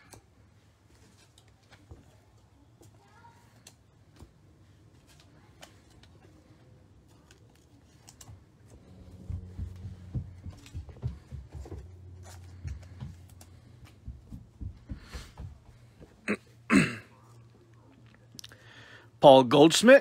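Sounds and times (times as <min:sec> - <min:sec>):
cards rustling and tapping: 0:02.8 - 0:16.1
low hum: 0:08.6 - 0:14.6.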